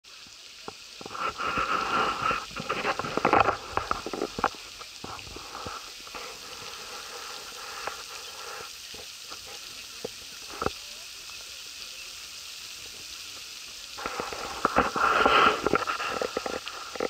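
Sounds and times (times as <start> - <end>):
fountain jets spraying: 0.0 - 17.0
microphone crackling and buffeting: 1.0 - 9.6, 14.0 - 17.0.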